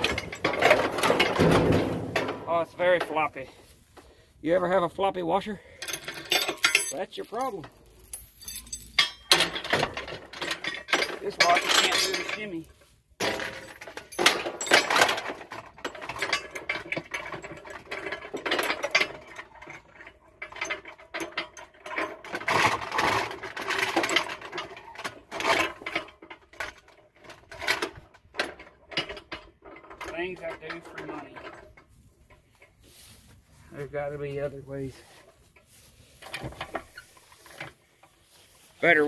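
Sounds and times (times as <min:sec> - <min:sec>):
metal clanking and rattling: 0:00.0 - 0:03.7, 0:05.7 - 0:32.9, 0:34.1 - 0:38.9.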